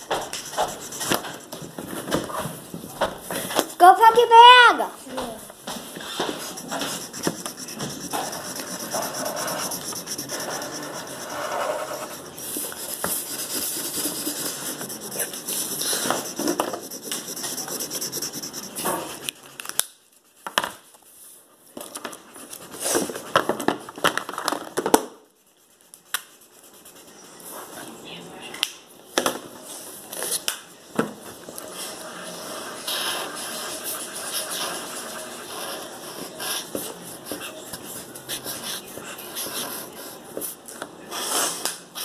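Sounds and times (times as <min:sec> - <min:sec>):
marker scratching on paper: 0:00.0 - 0:02.6, 0:05.6 - 0:19.3, 0:25.5 - 0:27.7, 0:31.6 - 0:40.5.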